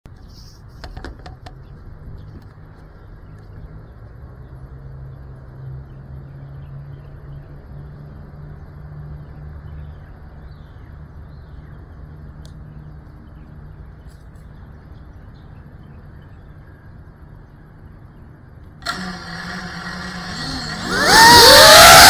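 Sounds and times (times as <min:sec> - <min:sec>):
low mechanical hum: 0:00.1 - 0:22.0.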